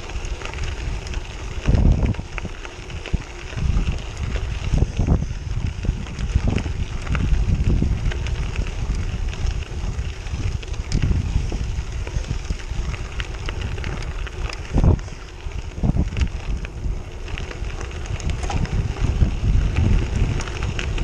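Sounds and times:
bike clicks and rattles: 0.0s - 21.0s
tyres crunching over gravel: 0.0s - 21.0s
wind rushing over microphone: 0.0s - 21.0s
heavy bike bump: 18.3s - 20.0s.

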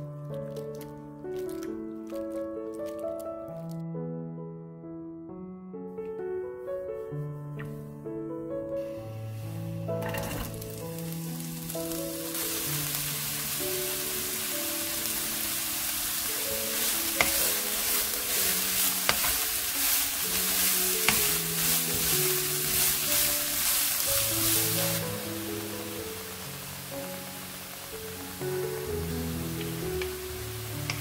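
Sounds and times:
soft background music: 0.0s - 31.0s
vegetables sizzling in hot oil: 8.8s - 31.0s
spatula tapping pan: 16.2s - 24.6s
spatula scraping pan: 16.6s - 25.0s.

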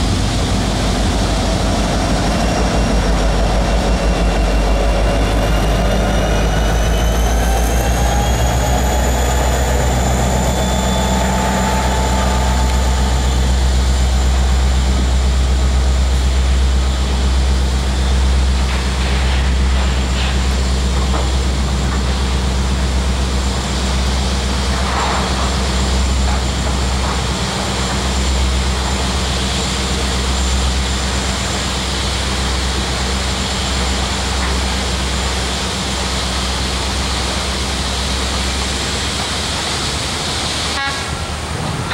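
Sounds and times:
diesel locomotive engine drone: 0.0s - 41.9s
wheels squealing: 3.5s - 14.3s.

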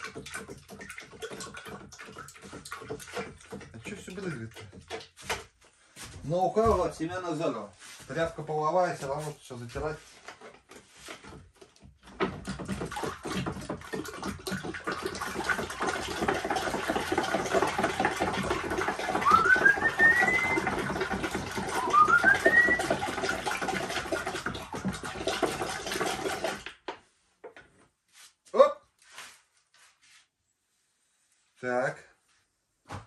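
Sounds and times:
wet rag rubbing: 7.7s - 11.4s, 28.0s - 30.4s.

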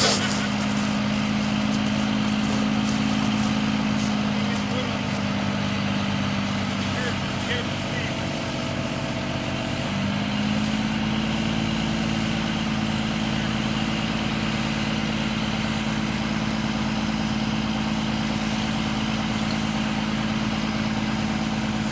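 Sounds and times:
fire truck engine hum: 0.0s - 21.9s.

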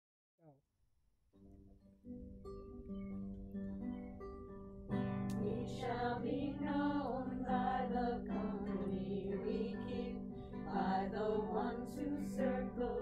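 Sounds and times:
acoustic guitar playing: 1.3s - 13.0s
voices singing: 5.3s - 13.0s.

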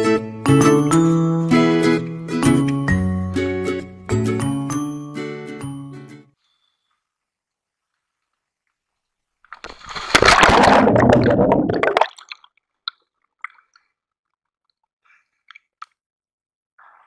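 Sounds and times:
splash into water: 9.5s - 12.5s
underwater bubbles rushing: 10.0s - 12.2s.

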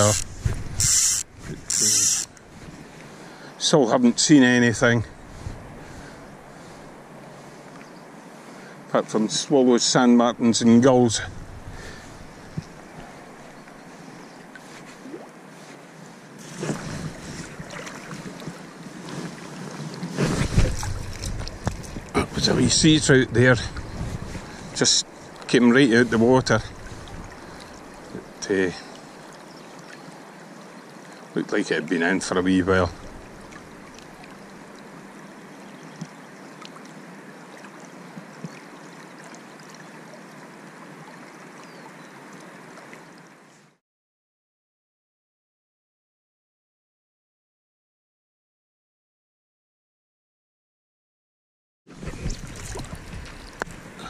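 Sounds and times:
river water lapping: 0.0s - 9.2s, 11.3s - 43.8s, 51.9s - 54.0s
wind buffeting microphone: 0.1s - 2.8s, 5.0s - 6.1s, 11.0s - 12.7s, 20.2s - 24.8s
river water rushing: 11.9s - 19.8s.

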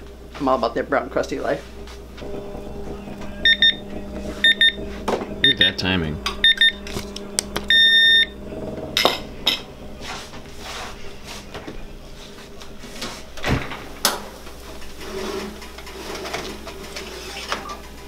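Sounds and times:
heavy low thump: 2.1s - 12.0s
metal spatula scraping baking tray: 9.5s - 11.6s, 14.7s - 17.7s.

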